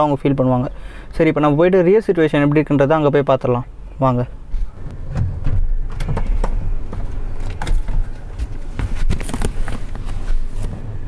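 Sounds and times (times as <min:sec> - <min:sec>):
low rumble: 0:04.4 - 0:08.6
car door opening: 0:04.6 - 0:11.0
sharp knocks and clicks: 0:04.9 - 0:10.0.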